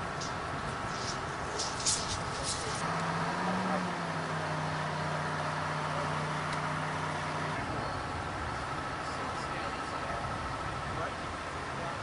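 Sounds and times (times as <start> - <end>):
crane engine humming: 0.0 - 12.0.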